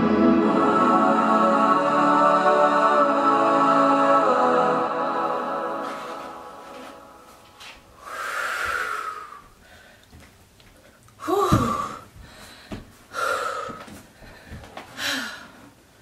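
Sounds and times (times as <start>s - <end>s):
woman breathing heavily: 8.0s - 10.3s, 11.2s - 15.7s.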